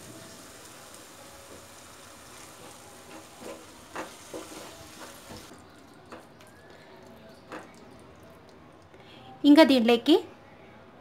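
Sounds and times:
food sizzling in a pan: 0:00.0 - 0:05.6
wooden spatula scraping a pan: 0:02.3 - 0:05.5.

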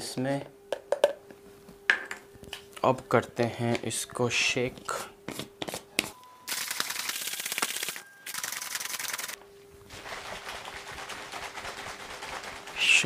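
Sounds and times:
shaker bottle shaken hard: 0:06.6 - 0:13.0.

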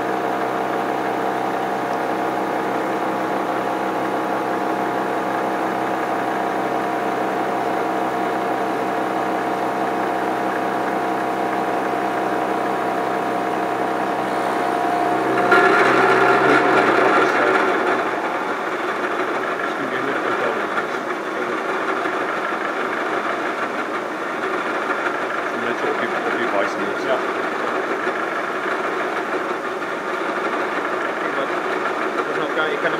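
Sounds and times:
milling machine hum: 0:00.0 - 0:32.9
rough metal cutting noise: 0:12.2 - 0:20.9.

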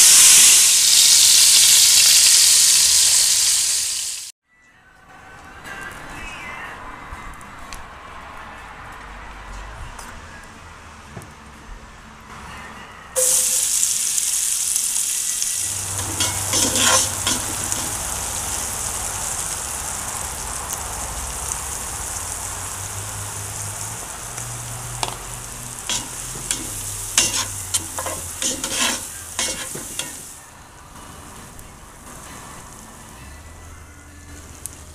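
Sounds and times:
onions sizzling in hot fat: 0:00.0 - 0:04.3, 0:13.2 - 0:31.1
spatula scraping iron pot: 0:15.8 - 0:18.0, 0:25.9 - 0:30.3.

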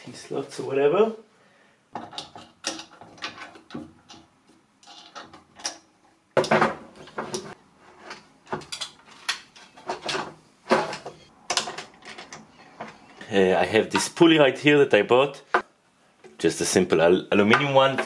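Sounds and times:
aluminium parts clacking on wood: 0:01.9 - 0:13.2.

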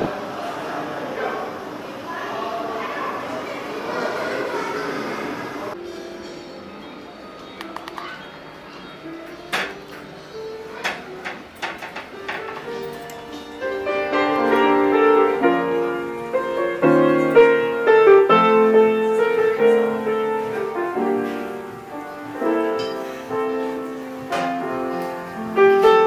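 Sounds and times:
grand piano melody: 0:05.7 - 0:26.0.

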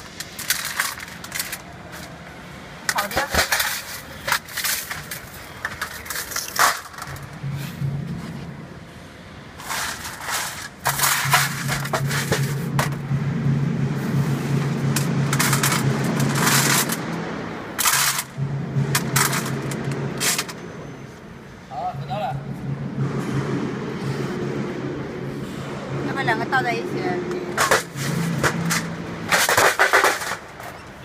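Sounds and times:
machine low hum: 0:06.9 - 0:29.6.

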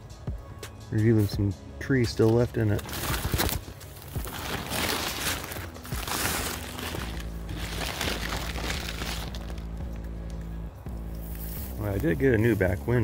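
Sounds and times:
background music: 0:00.0 - 0:13.0
tarp rustling and crinkling: 0:02.2 - 0:09.8.

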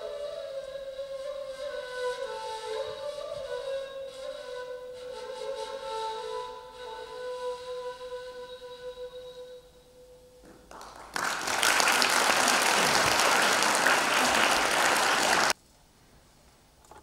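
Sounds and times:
audience applauding: 0:10.7 - 0:15.6.

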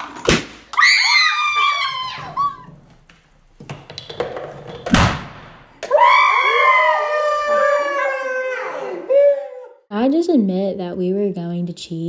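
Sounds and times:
balloon bursting: 0:00.0 - 0:00.8, 0:04.8 - 0:05.7.

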